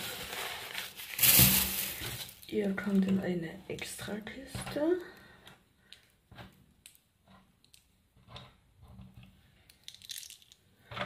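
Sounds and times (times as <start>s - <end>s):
small objects clicking and knocking: 3.8s - 11.0s.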